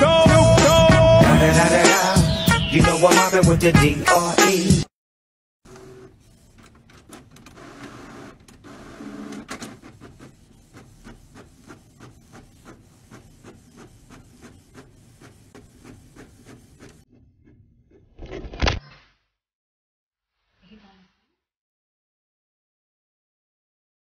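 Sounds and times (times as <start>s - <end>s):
printer paper feed whirring: 5.7s - 17.0s.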